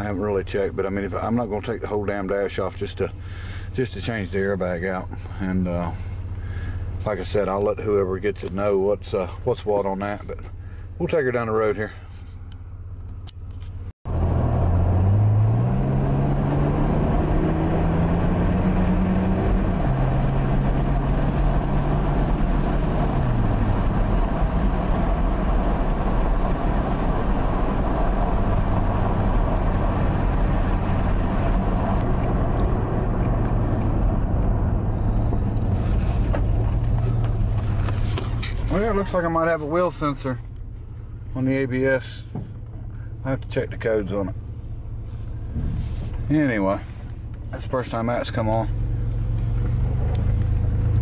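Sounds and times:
tyre and road noise: 0:11.8 - 0:51.0
pickup engine accelerating: 0:12.2 - 0:51.0.

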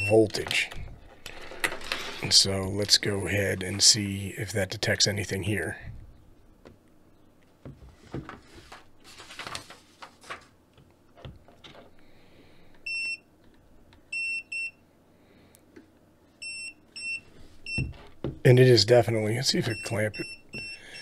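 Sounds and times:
voltage tester beeping: 0:00.0 - 0:00.6, 0:19.6 - 0:21.0
plastic clicks and rustling: 0:00.3 - 0:02.1.

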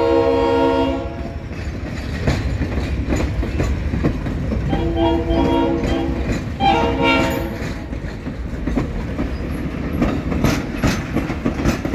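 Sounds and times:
locomotive horn chord blasts: 0:00.0 - 0:01.4, 0:04.7 - 0:07.6
train cars rumbling and clacking: 0:00.0 - 0:11.9.

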